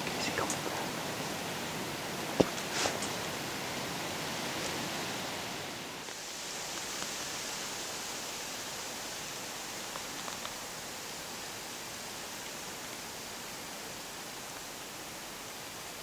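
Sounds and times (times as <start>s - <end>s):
outdoor background hiss: 0.0s - 16.0s
faint ticks: 6.1s - 7.2s, 9.8s - 10.6s.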